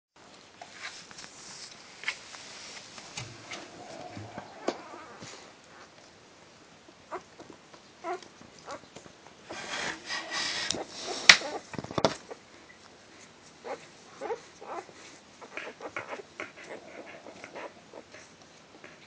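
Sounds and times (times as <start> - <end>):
rustling: 0.2 - 6.2, 7.1 - 19.0
puppies squeaking and whimpering: 3.6 - 5.9, 10.2 - 11.7, 13.6 - 18.3.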